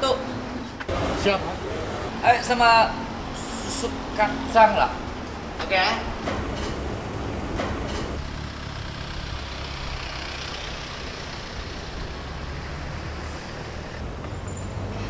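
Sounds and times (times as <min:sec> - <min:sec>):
pickup truck driving slowly past: 0:08.2 - 0:14.9.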